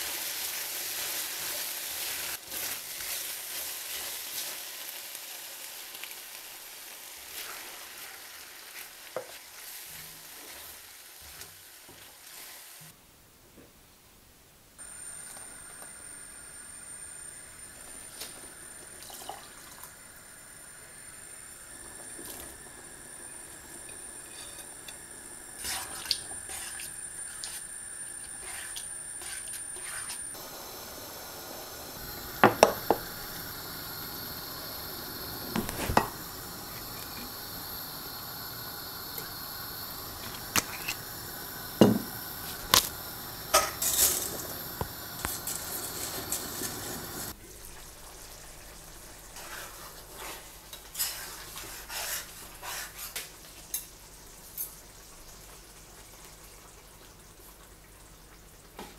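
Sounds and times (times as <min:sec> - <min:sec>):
water boiling in a pot: 0:00.0 - 0:13.0, 0:14.8 - 0:58.9
water pouring into a pan: 0:18.8 - 0:20.0.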